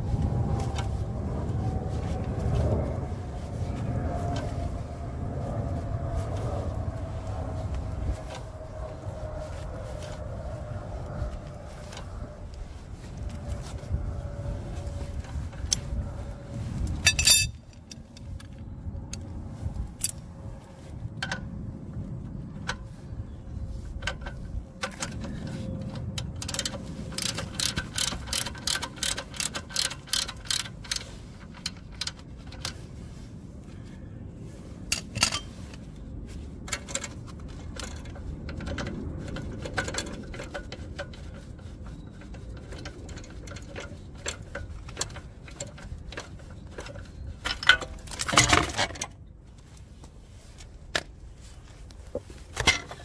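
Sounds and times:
low rumble: 0.0 - 26.4
metal tools knocking: 17.0 - 17.6
socket ratchet clicking: 26.3 - 32.3.

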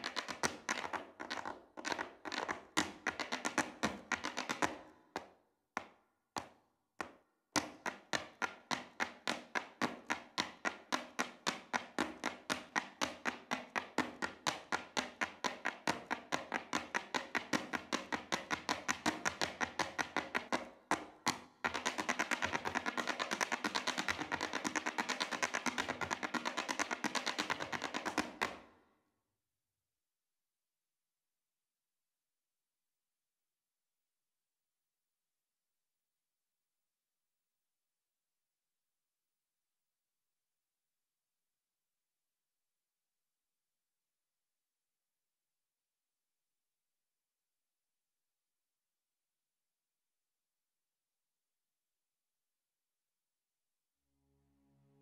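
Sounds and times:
hard shoes striking wooden stage: 0.0 - 28.6.

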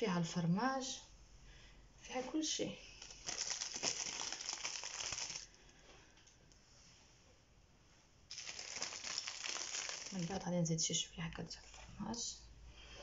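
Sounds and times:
plastic packet crinkling: 3.0 - 5.6, 8.3 - 10.5.

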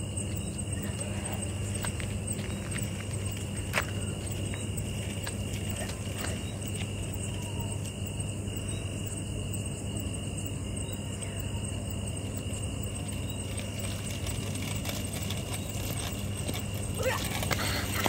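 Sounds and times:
constant low hum: 0.0 - 18.0
high-pitched insect drone: 0.0 - 18.0.

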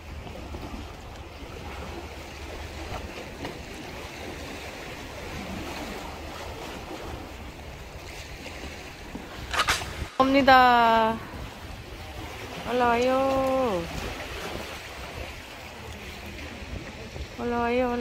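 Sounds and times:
small waves against concrete: 0.0 - 18.0
wind rumbling on microphone: 0.0 - 18.0
sharp clatter: 9.4 - 10.2.

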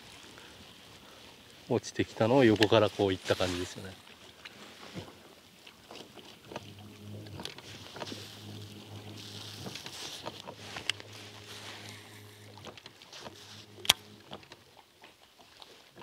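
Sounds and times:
faint hiss: 0.1 - 4.0, 6.5 - 14.3
boat motor humming: 3.9 - 15.2.

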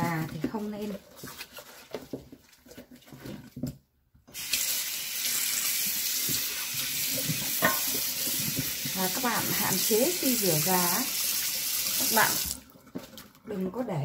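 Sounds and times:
tap water running into sink: 4.3 - 13.4.

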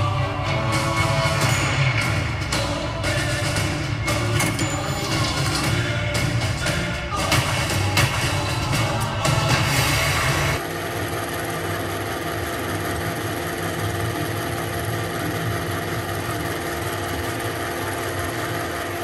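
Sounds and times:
music: 0.0 - 10.6
film projector motor humming: 0.0 - 19.0.

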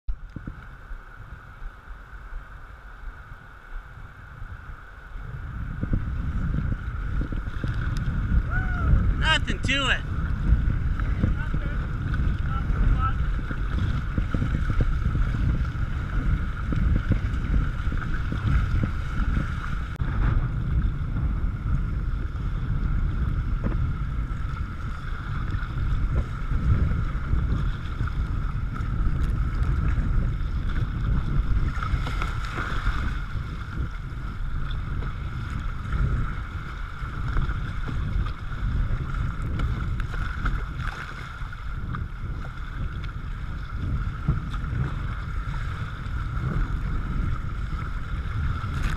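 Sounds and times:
rushing churning water: 0.1 - 48.9
wind rumbling on microphone: 0.1 - 48.9
paddle splashes against hull: 23.6 - 34.0, 34.6 - 48.9.

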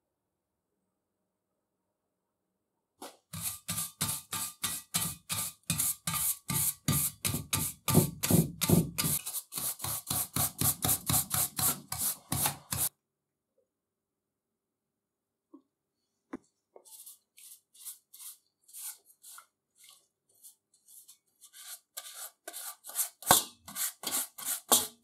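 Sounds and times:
wire brush scrubbing metal: 3.4 - 7.8.

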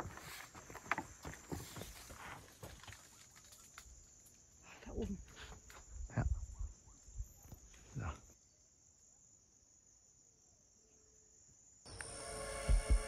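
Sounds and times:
music: 11.9 - 13.0.

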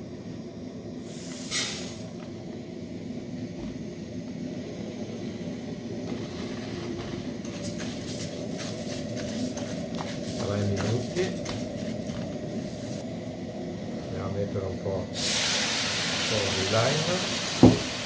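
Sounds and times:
gas burner rushing: 0.0 - 18.0
rice sizzling in hot oil: 1.0 - 2.1, 6.1 - 13.0, 15.1 - 18.0.

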